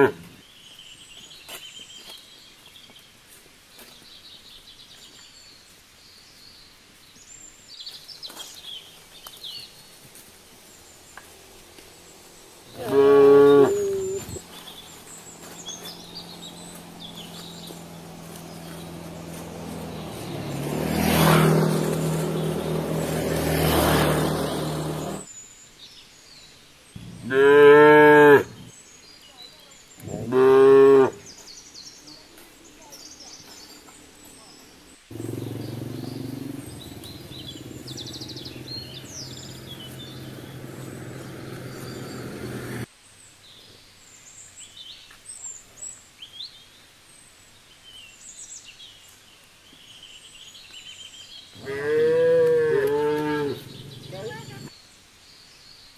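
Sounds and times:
motorbike engine hum: 11.2 - 25.3, 35.1 - 42.9, 52.4 - 54.7
cattle mooing: 12.7 - 14.4, 27.1 - 28.6, 51.6 - 54.6.

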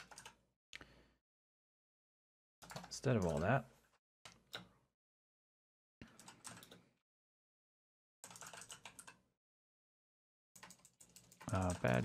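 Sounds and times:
keyboard typing: 0.0 - 0.4, 2.6 - 3.5, 6.0 - 6.8, 8.2 - 9.2, 10.6 - 12.0.

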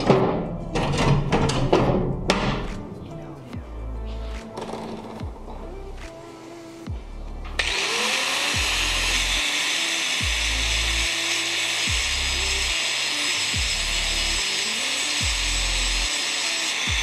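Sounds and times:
music with deep bass: 0.0 - 9.4, 10.1 - 11.2, 11.8 - 12.8, 13.4 - 14.5, 15.2 - 16.1
angle grinder grinding metal: 7.5 - 17.0.

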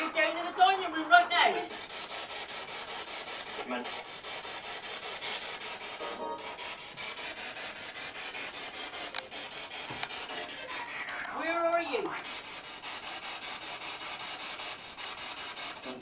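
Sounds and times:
pulsing radio static: 0.0 - 1.8, 10.0 - 12.4
snatch of broadcast sound: 0.0 - 16.0
sharp clicks: 9.0 - 9.3, 9.9 - 12.2.

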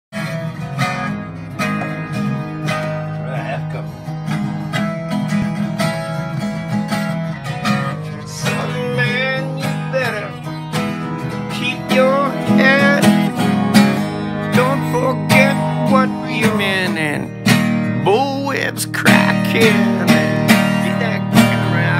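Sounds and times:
acoustic guitar strumming: 0.1 - 21.9
wavering voice: 3.1 - 4.1.

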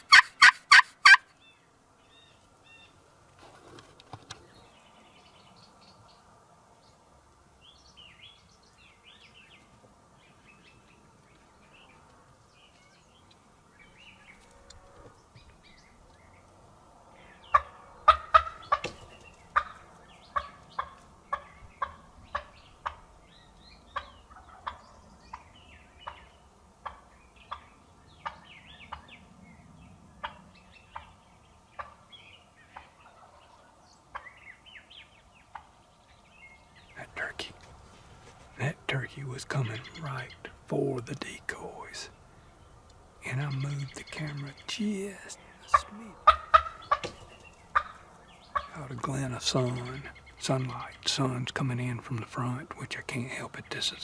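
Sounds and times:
wild turkey calling: 0.0 - 3.1, 17.1 - 29.3, 30.2 - 54.0
faint songbird chirps: 4.3 - 54.0.

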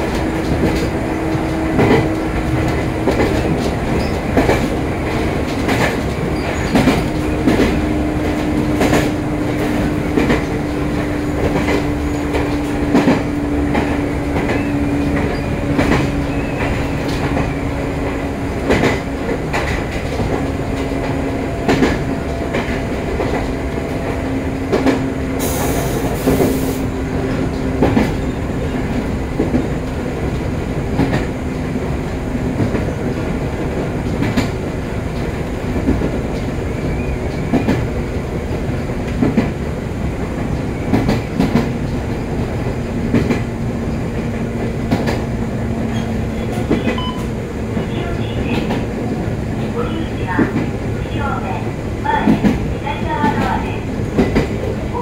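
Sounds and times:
train wheels clicking over rail joints: 0.0 - 51.0, 52.1 - 55.0
steady train hum: 0.0 - 55.0.

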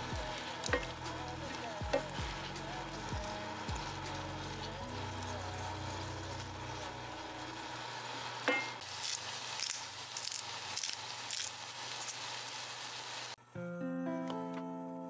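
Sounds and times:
food sizzling in a frying pan: 0.0 - 13.4
spitting crackles: 7.6 - 13.4.

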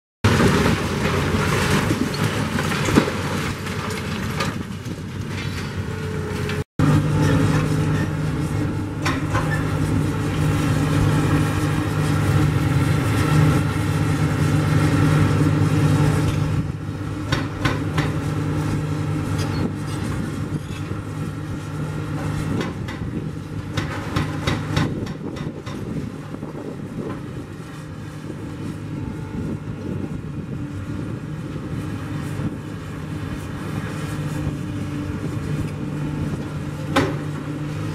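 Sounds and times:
excavator diesel engines running: 0.2 - 37.9
concrete breaking and debris falling: 0.3 - 5.5.

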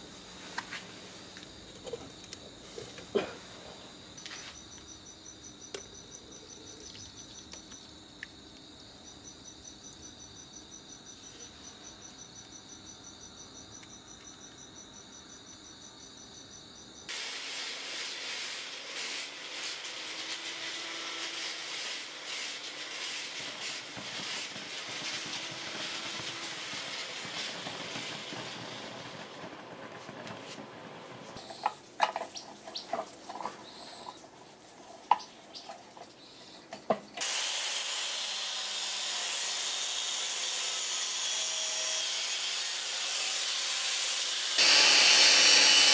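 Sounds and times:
crickets chirping: 0.0 - 17.1, 31.4 - 37.2
molten metal hissing and crackling: 17.1 - 40.8.

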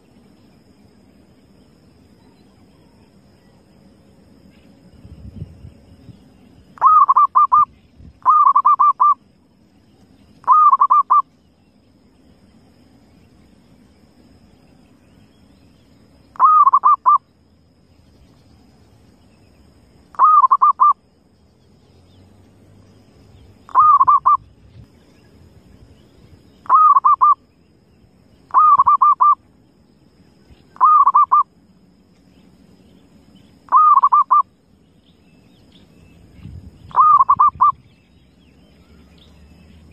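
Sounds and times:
dove cooing: 6.8 - 9.2, 10.4 - 11.2, 16.4 - 17.2, 20.2 - 21.0, 23.7 - 24.4, 26.7 - 27.4, 28.5 - 29.4, 30.8 - 31.4, 33.7 - 34.4, 36.9 - 37.8.

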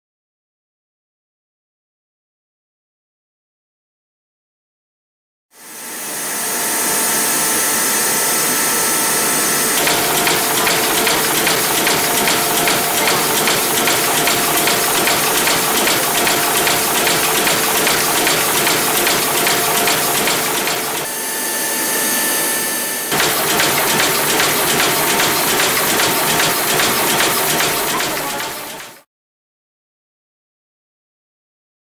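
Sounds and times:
machine hissing: 8.8 - 21.3, 23.0 - 29.0
fast regular ticking: 9.8 - 21.1, 23.1 - 28.9.

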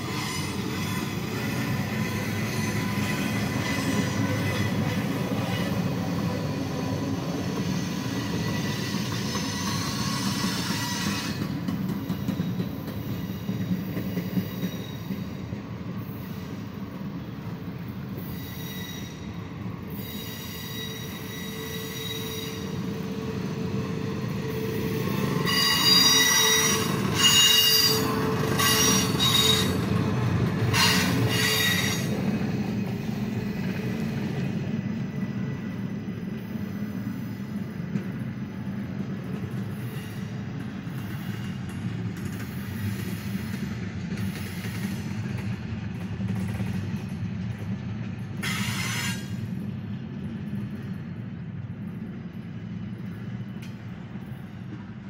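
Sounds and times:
steel wheels rumbling on rail: 0.0 - 55.0
wheels squealing: 18.2 - 32.3.

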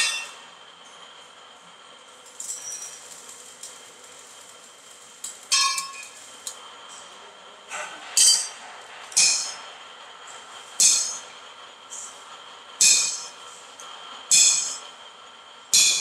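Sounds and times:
metal tool clanking on steel drum: 5.5 - 6.2.

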